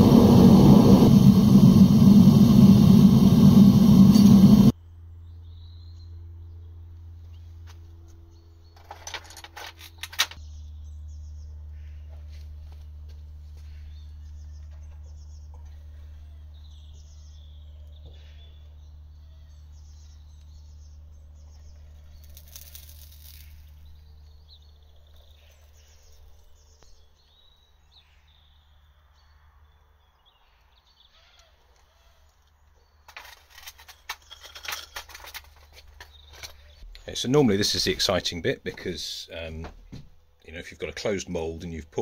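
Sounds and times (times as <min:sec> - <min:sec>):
low steady rumble: 0:00.0 - 0:05.4
small birds chirping: 0:10.4 - 0:39.6.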